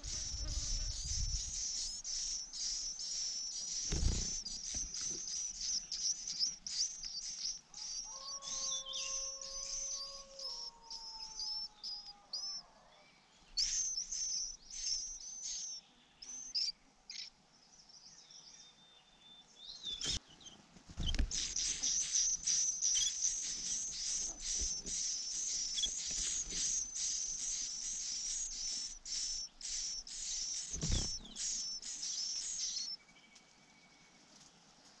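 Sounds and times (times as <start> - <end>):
nestlings cheeping: 0.0 - 12.6, 13.6 - 16.7, 21.0 - 33.0.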